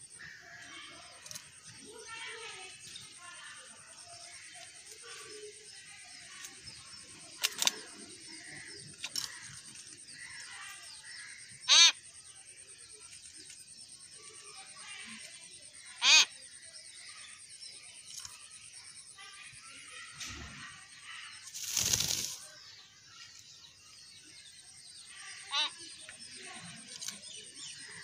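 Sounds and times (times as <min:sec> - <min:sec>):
faint bird chirping: 0:00.0 - 0:28.0
myna bird calling: 0:04.3 - 0:18.6, 0:24.1 - 0:28.0.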